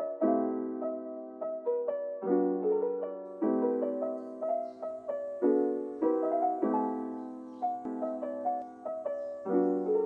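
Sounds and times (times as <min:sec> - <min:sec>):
soft piano music: 0:00.0 - 0:10.0.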